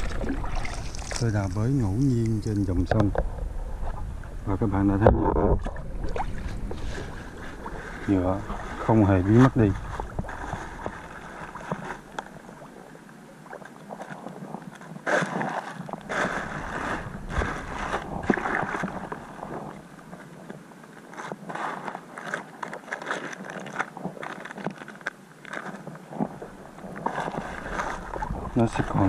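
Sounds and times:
water sloshing and splashing: 0:00.0 - 0:29.0
wet plastic crinkling: 0:22.1 - 0:25.9.

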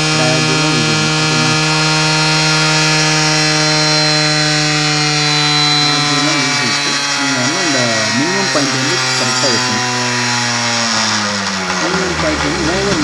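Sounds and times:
motorcycle engine idling: 0:09.7 - 0:13.0.

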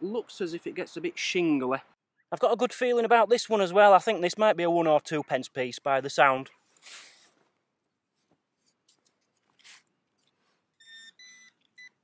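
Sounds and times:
faint scrape of sand: 0:06.8 - 0:07.4, 0:09.4 - 0:09.9
short electronic beeps: 0:10.8 - 0:12.0.

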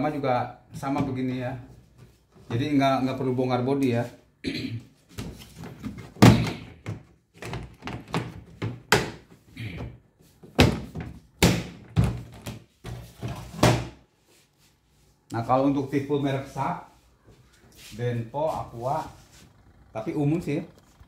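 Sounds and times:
hollow plastic knocks and thuds: 0:05.2 - 0:09.3, 0:10.5 - 0:12.6.

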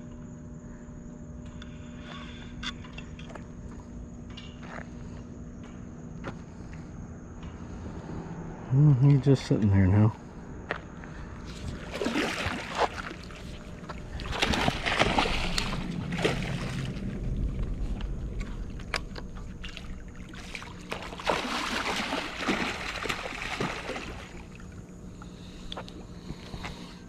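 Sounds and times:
fish splashing and thrashing: 0:11.4 - 0:26.9
water sloshing: 0:11.4 - 0:26.9.

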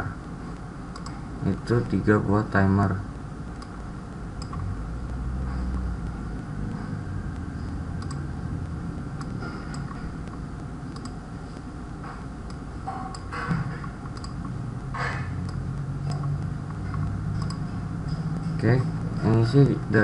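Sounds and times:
low background hum: 0:00.0 - 0:20.0
computer mouse clicks: 0:00.9 - 0:01.2, 0:04.4 - 0:04.6, 0:07.6 - 0:08.3, 0:09.2 - 0:11.2, 0:12.5 - 0:14.5, 0:15.4 - 0:17.6.

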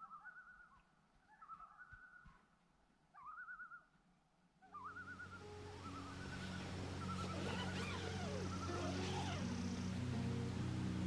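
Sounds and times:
loons tremolo call: 0:04.8 - 0:10.4.

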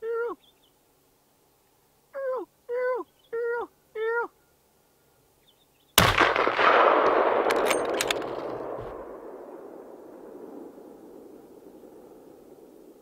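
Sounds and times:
rifle shot echoing: 0:06.0 - 0:12.9
sharp clicks: 0:07.4 - 0:08.9.

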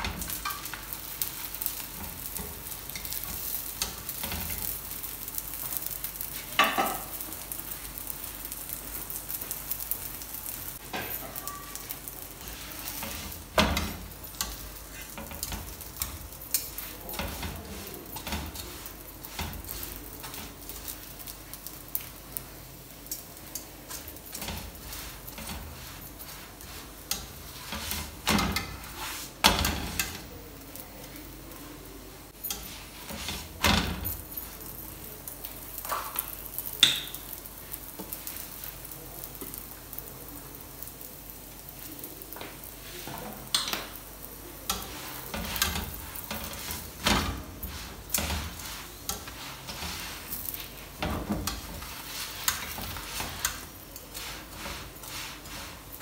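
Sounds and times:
oil sizzling on griddle: 0:00.0 - 0:56.0
metal spatula scraping pan: 0:24.3 - 0:30.2, 0:44.7 - 0:56.0.

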